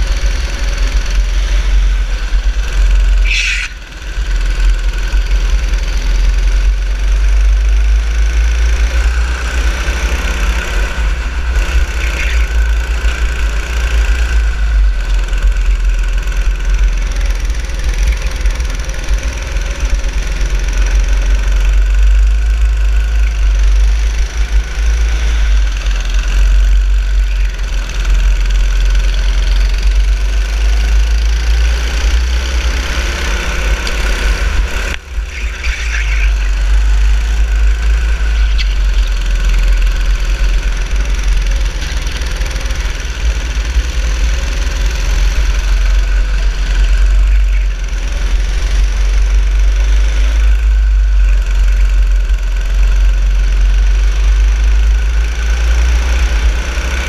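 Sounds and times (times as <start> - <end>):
go-kart engine running: 0.0 - 57.0.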